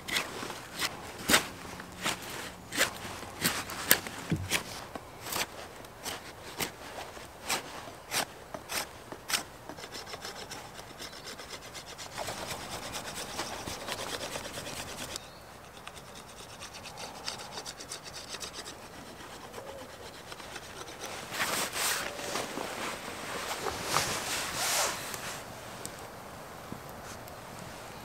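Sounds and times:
knife whittling wood: 0.1s - 6.8s, 7.5s - 22.1s.

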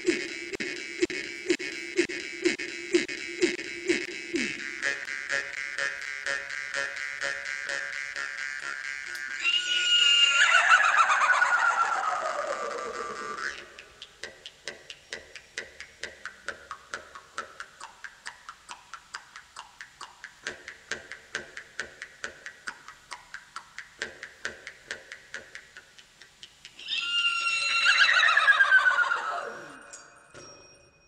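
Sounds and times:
wavering whinny-like cry: 9.2s - 13.8s, 26.8s - 30.1s.

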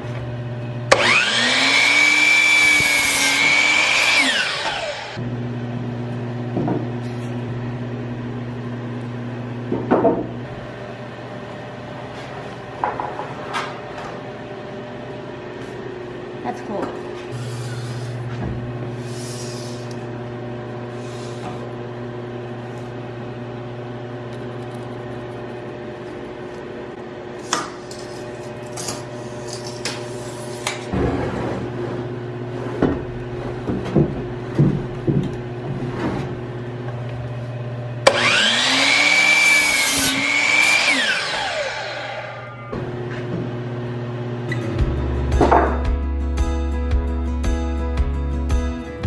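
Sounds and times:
miter saw cutting board: 0.9s - 5.2s, 38.0s - 42.8s.

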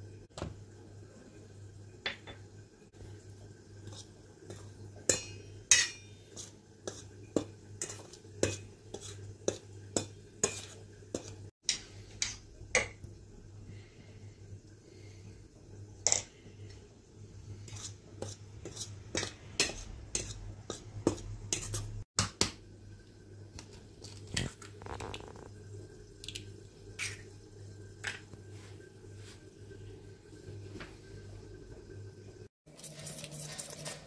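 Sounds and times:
cutlery clinking against metal bowl: 3.9s - 13.0s, 17.7s - 21.9s.

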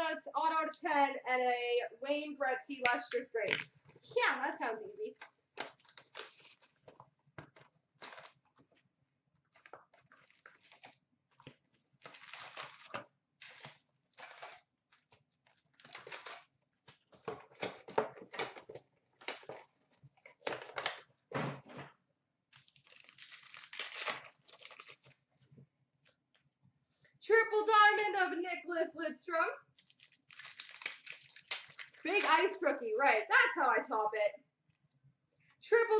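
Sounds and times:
packaging crinkling: 5.6s - 6.9s, 8.0s - 8.6s, 9.6s - 16.5s, 22.5s - 25.2s, 29.7s - 32.5s
foil wrappers tearing: 5.8s - 6.7s, 8.0s - 8.4s, 12.0s - 14.6s, 15.8s - 16.5s, 22.6s - 25.2s, 29.8s - 32.5s.

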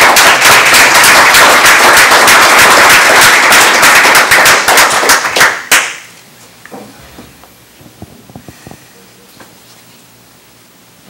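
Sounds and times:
crowd applauding: 0.0s - 6.1s.

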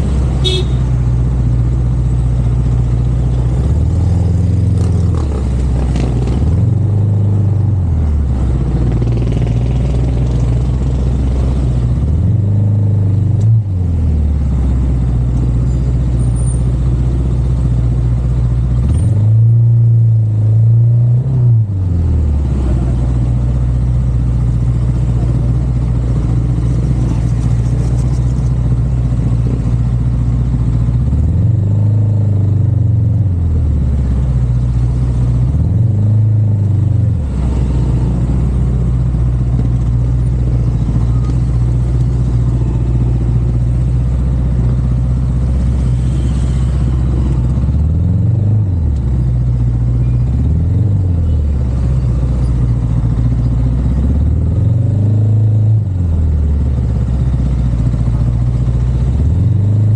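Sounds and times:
road noise: 0.0s - 59.9s
vehicle engine revving: 3.2s - 14.1s, 24.4s - 32.5s.

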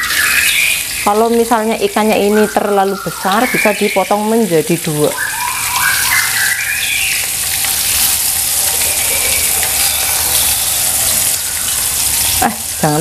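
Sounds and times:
fish frying in oil: 0.0s - 13.0s
wavering squeaky tone: 5.1s - 12.8s.

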